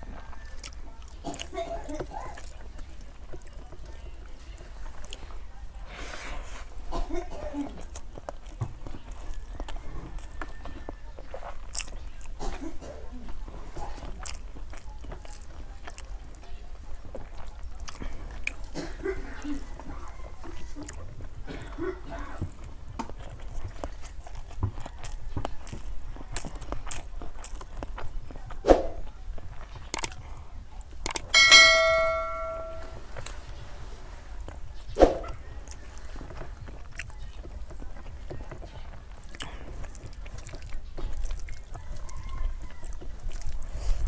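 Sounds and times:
chewing close to microphone: 0.0s - 31.4s, 33.0s - 44.0s
hand mixing rice on steel plate: 31.2s - 34.6s
bright bell-like ding: 31.4s - 33.0s.

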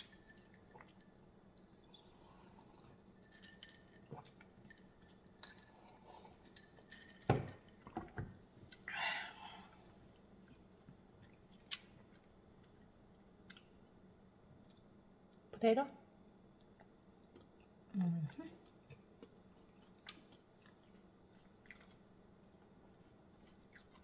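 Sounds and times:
quiet chewing: 18.6s - 24.0s.

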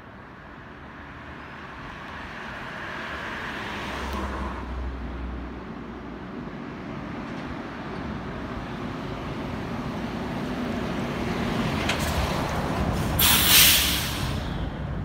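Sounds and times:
loud air brake hiss: 12.9s - 14.7s.

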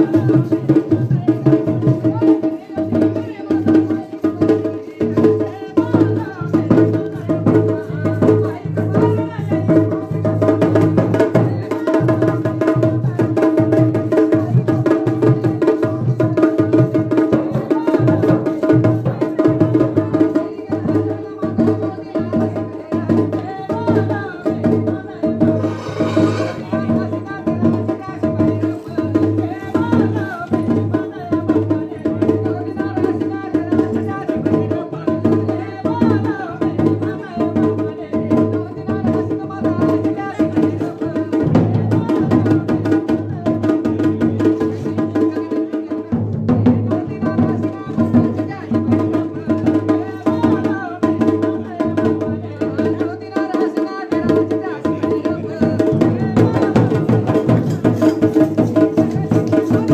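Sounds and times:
steady drumming: 22.3s - 31.8s, 53.4s - 59.9s.

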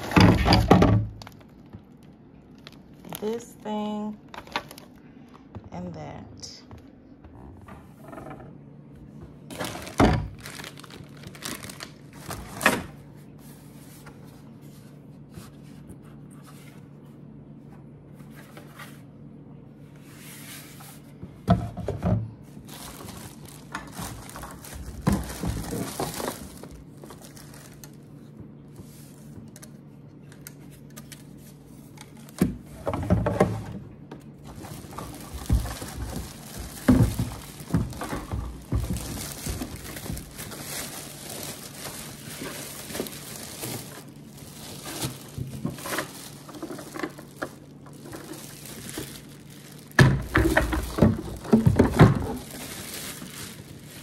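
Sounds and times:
plastic wrapping crinkling: 0.0s - 5.0s, 9.4s - 16.0s, 22.4s - 33.3s, 34.3s - 54.0s
knocks and bumps on plastic: 32.4s - 40.8s, 50.0s - 52.5s.

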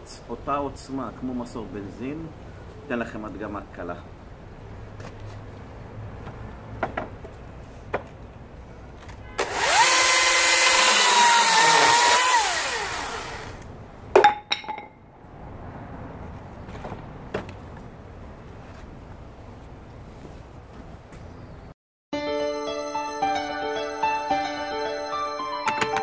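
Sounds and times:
electric chainsaw whine: 9.4s - 13.6s.

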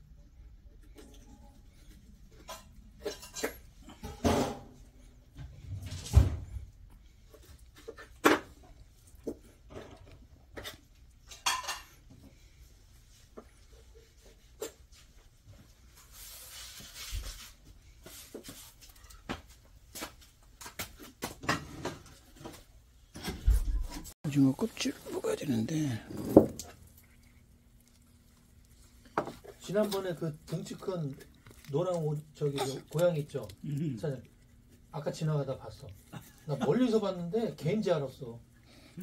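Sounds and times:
cat chewing fish bones: 25.0s - 36.6s.

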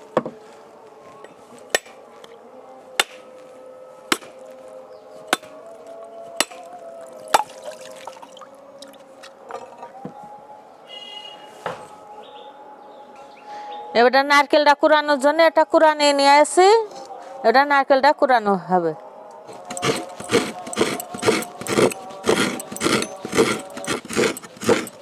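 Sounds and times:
machete striking coconut: 3.0s - 3.2s, 4.1s - 4.4s, 6.4s - 6.6s, 7.3s - 7.6s.

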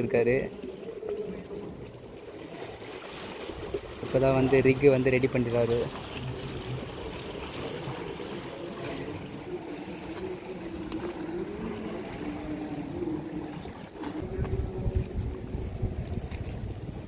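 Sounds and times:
motor humming: 5.9s - 16.6s
wind buffeting microphone: 10.4s - 17.0s.

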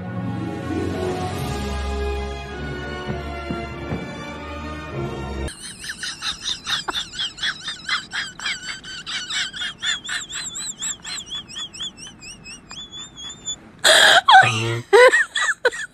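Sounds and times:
puppy whining: 9.4s - 13.6s.

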